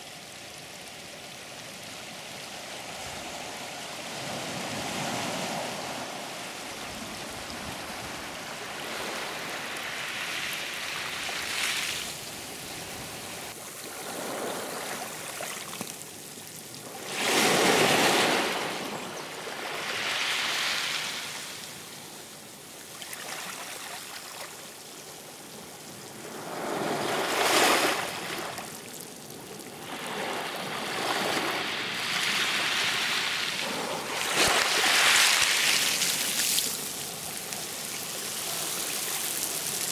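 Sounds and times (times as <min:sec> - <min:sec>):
sea waves washing in: 0:02.4 - 0:16.0, 0:26.1 - 0:39.9.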